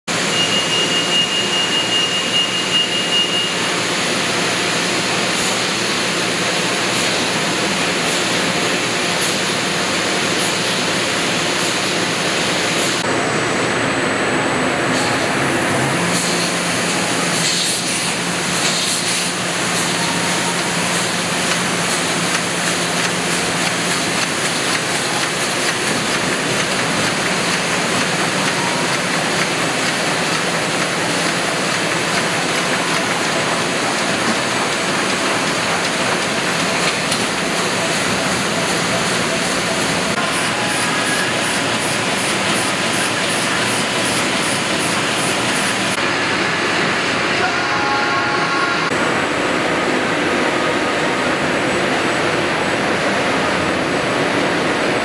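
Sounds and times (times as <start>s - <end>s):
printing press running: 0.1s - 55.0s.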